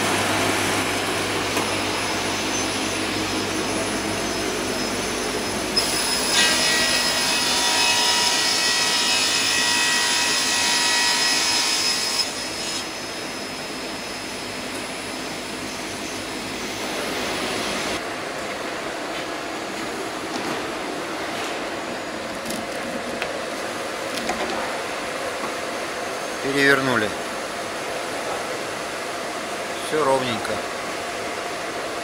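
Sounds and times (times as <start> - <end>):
multi-rip saw machine running: 0.0 - 18.0
saw blades cutting board: 1.6 - 13.4.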